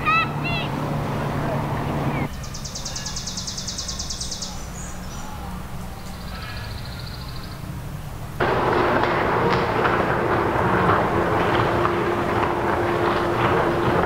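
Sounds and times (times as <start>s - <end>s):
low background rumble: 0.0s - 14.0s
bird trilling: 1.8s - 7.8s.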